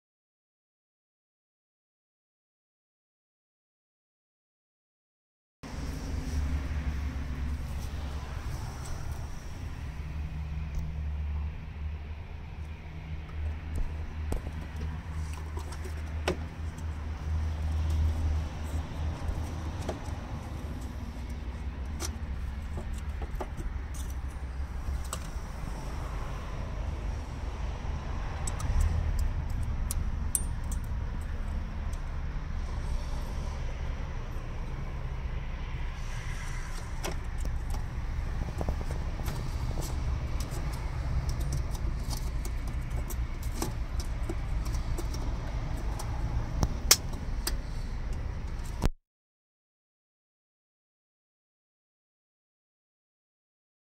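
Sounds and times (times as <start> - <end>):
steady low rumble: 5.6 - 48.9
sharp clicks and metal snaps: 28.4 - 32.1, 40.4 - 48.9.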